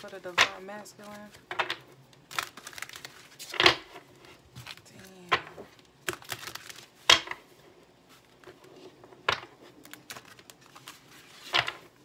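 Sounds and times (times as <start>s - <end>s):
cards clicking and rustling: 0.0s - 3.9s, 4.6s - 7.4s, 9.3s - 11.9s.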